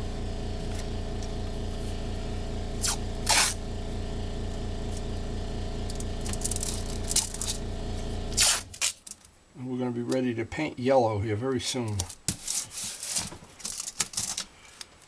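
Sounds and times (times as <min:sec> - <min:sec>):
low machine hum: 0:00.0 - 0:08.8
masking tape pulled off roll: 0:02.8 - 0:03.6, 0:05.9 - 0:07.6, 0:08.3 - 0:09.3, 0:12.0 - 0:14.9.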